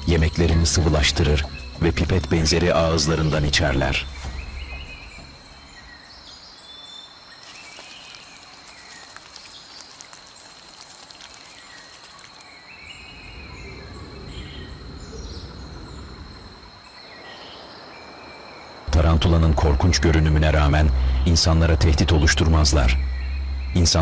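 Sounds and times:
crackling insect chorus: 0:00.0 - 0:24.0
low rumble: 0:01.3 - 0:06.3, 0:18.9 - 0:24.0
high-pitched insect drone: 0:19.8 - 0:24.0.

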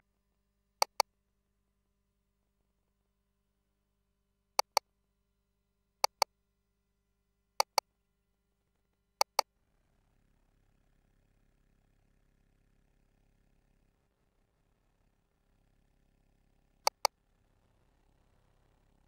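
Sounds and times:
sharp double clicks: 0:00.8 - 0:01.0, 0:04.6 - 0:04.8, 0:06.0 - 0:06.2, 0:07.6 - 0:07.8, 0:09.2 - 0:09.4, 0:16.9 - 0:17.1.

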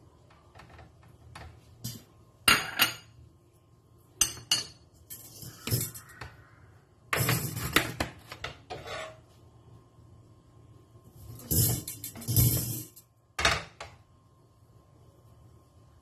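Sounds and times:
dishes and utensils clattering: 0:01.4 - 0:03.2, 0:04.2 - 0:06.4, 0:07.2 - 0:09.2, 0:11.2 - 0:13.8.

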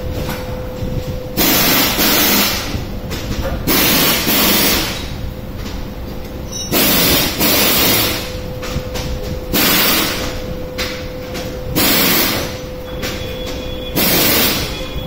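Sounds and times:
steady low rumble: 0:00.0 - 0:15.0
loud bursts of hissing: 0:01.4 - 0:02.8, 0:03.7 - 0:05.1, 0:06.7 - 0:08.3, 0:09.5 - 0:10.2, 0:11.8 - 0:12.6, 0:13.9 - 0:15.0.

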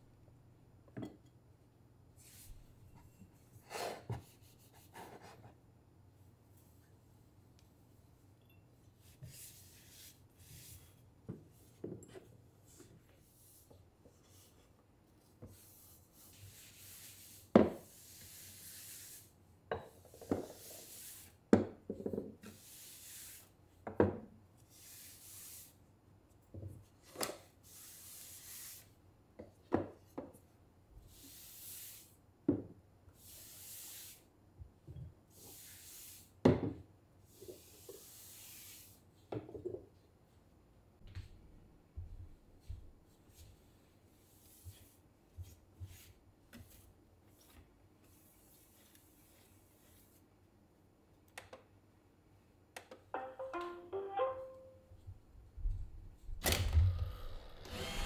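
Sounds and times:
cloth wiping wood: 0:15.6 - 0:19.3.

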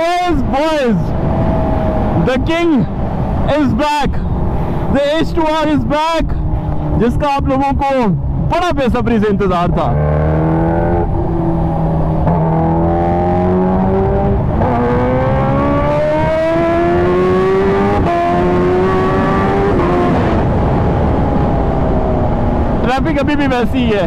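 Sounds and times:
motorcycle engine accelerating: 0:09.6 - 0:22.8.

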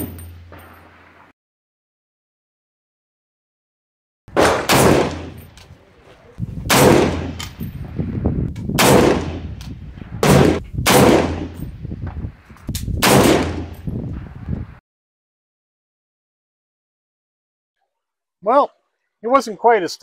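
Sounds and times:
rifle shots echoing: 0:04.3 - 0:05.6, 0:06.7 - 0:07.6, 0:08.8 - 0:09.6, 0:10.2 - 0:11.6, 0:13.0 - 0:13.8.

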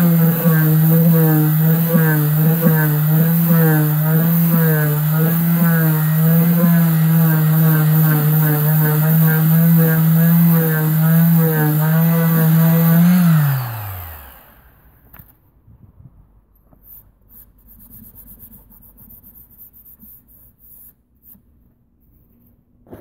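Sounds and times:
oscillating multi-tool running: 0:00.0 - 0:14.8.

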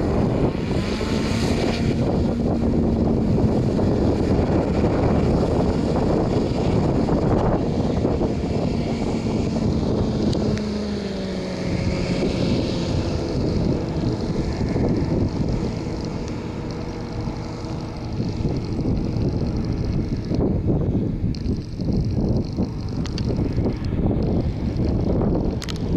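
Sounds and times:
hovercraft engine and propeller: 0:00.0 - 0:25.9
wind noise on microphone: 0:00.0 - 0:25.9.

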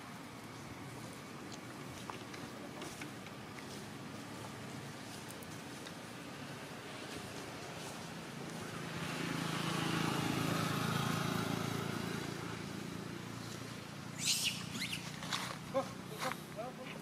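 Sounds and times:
distant vehicle engine: 0:02.0 - 0:17.0
sharp high-pitched animal calls: 0:14.2 - 0:15.2.

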